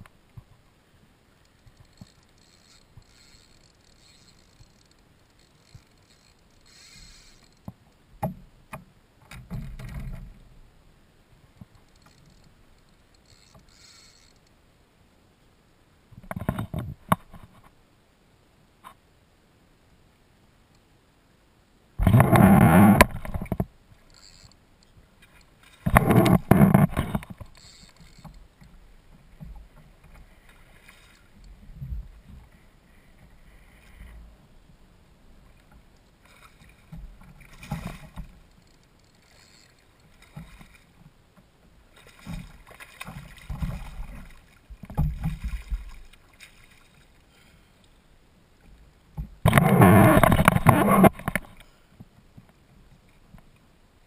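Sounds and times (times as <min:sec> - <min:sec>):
fish splashing and thrashing: 0:25.3 - 0:28.7, 0:35.8 - 0:41.0, 0:41.9 - 0:47.2
soft splashes and knocks: 0:35.6 - 0:38.4, 0:40.0 - 0:47.2.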